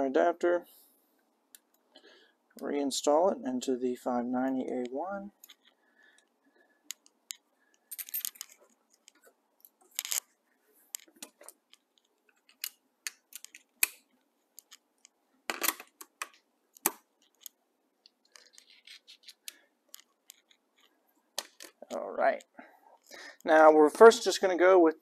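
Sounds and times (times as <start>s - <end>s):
gun parts clicking and tapping: 4.6s - 10.3s, 10.9s - 22.0s.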